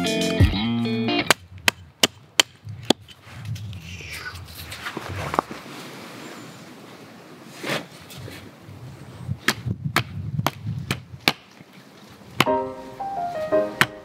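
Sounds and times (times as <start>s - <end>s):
brief scrape: 7.5s - 8.4s
wooden knocks of pole hammering: 9.5s - 11.5s, 13.8s - 14.0s.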